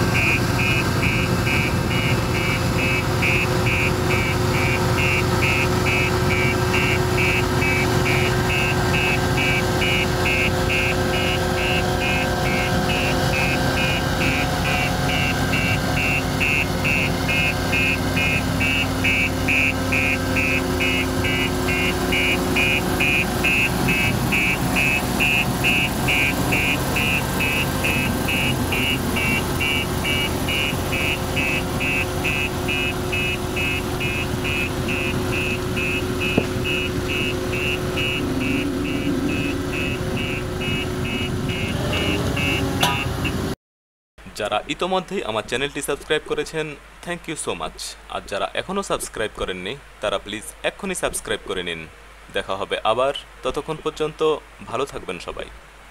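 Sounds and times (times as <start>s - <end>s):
roller compacting sand: 0.0s - 43.5s
warning alarm beeping: 0.0s - 43.5s
roller diesel engine running: 0.0s - 43.6s.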